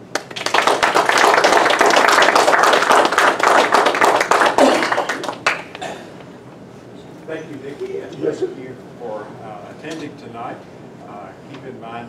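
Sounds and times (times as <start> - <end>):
small audience applauding: 0.0 - 5.8.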